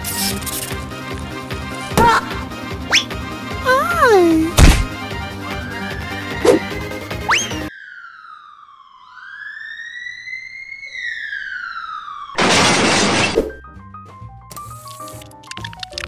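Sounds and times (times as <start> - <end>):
light music: 0.0 - 7.7, 13.6 - 16.0
cartoon ambulance siren wailing: 7.4 - 13.1.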